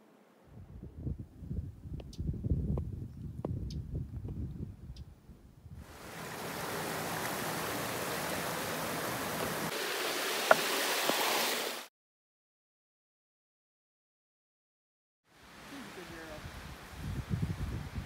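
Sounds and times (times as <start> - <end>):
water rushing over rocks: 5.9 - 11.9.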